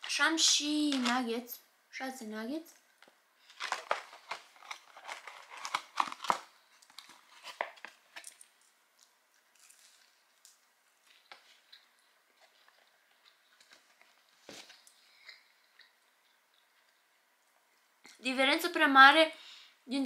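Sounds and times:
paper packaging crinkling: 0.0 - 1.4, 3.0 - 8.7, 9.5 - 15.0.

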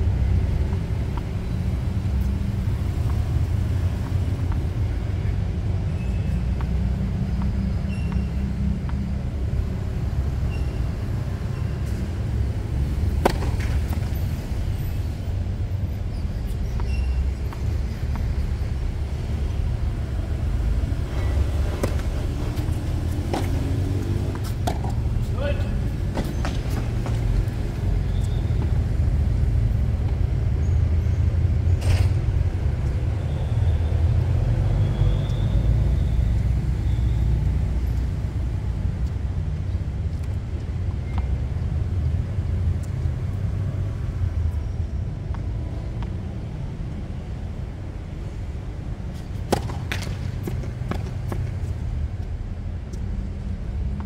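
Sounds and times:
tennis balls struck with rackets: 13.1 - 14.1, 21.2 - 27.6, 49.1 - 51.5.

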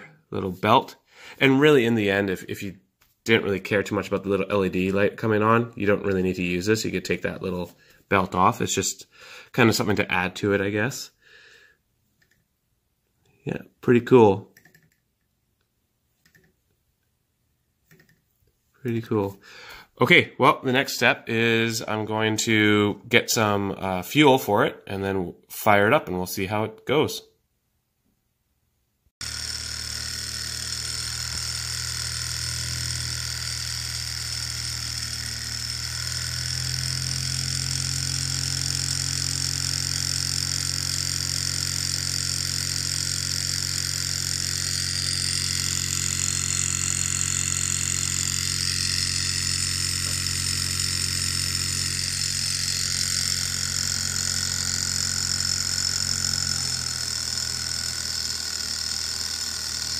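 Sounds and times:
high whir: 29.2 - 59.9
model engine mechanical hum: 29.2 - 59.9.

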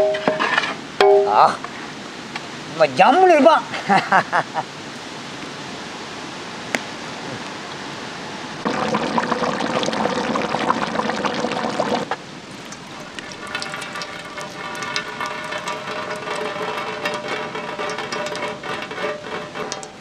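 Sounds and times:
curry bubbling in a pot: 8.6 - 20.0
liquid dripping through colander: 8.7 - 19.0, 19.6 - 20.0.

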